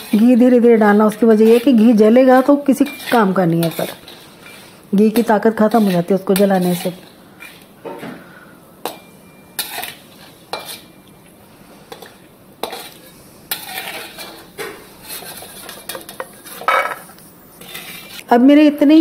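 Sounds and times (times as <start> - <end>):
metal skimmer scraping metal pan: 0.0 - 7.6, 12.6 - 17.0
faint oil sizzle: 0.0 - 18.3.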